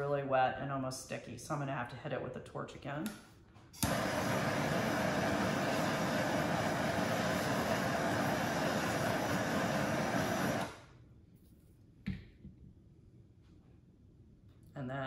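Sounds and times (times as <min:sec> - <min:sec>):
propane torch hissing: 0:03.8 - 0:10.9.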